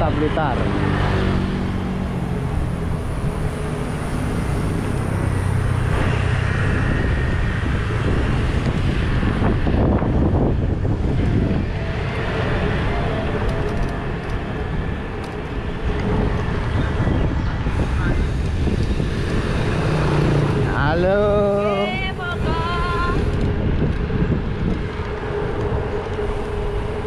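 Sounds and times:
motor vehicles passing: 0.0 - 27.0
street traffic noise: 0.0 - 27.0
wind rushing over microphone: 0.0 - 27.0.

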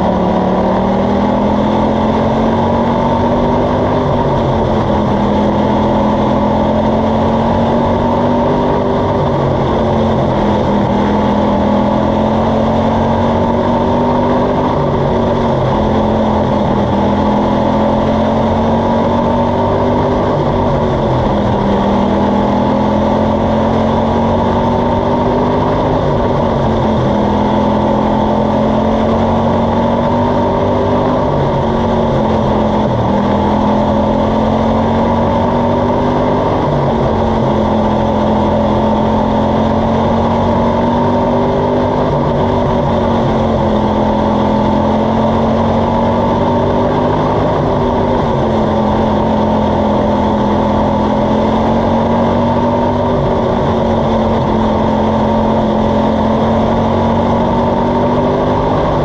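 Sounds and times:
race car engine running hard: 0.0 - 59.0.

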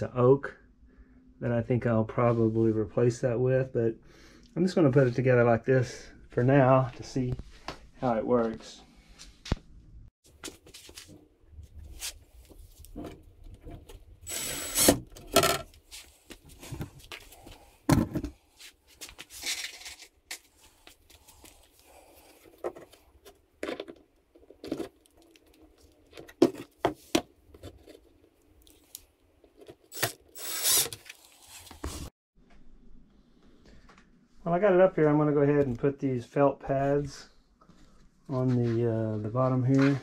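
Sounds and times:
cordless driver running screws: 14.3 - 15.0, 29.9 - 31.0.

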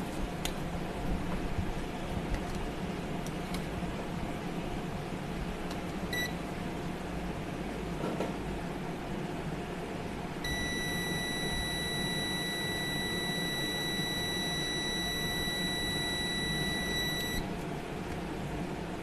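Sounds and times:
multimeter continuity beep: 6.1 - 6.4, 10.4 - 17.4.

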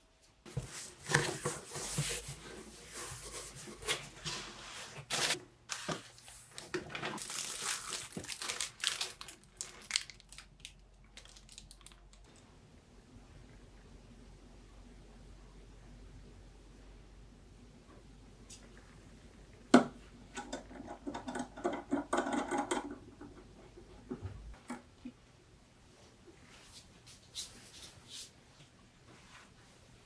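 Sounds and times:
plastic bags crinkling: 6.5 - 12.3.

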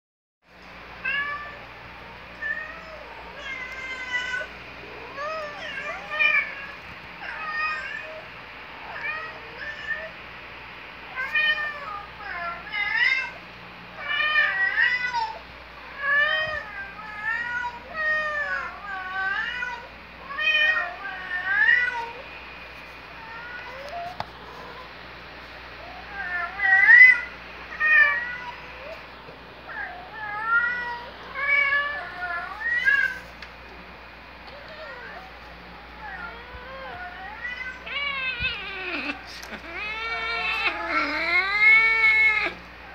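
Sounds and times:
cat meowing: 36.0 - 42.6.

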